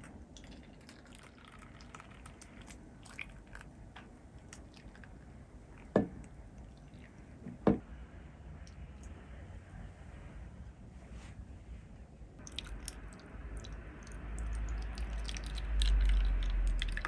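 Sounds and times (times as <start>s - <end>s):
faint dripping: 12.4s - 17.0s.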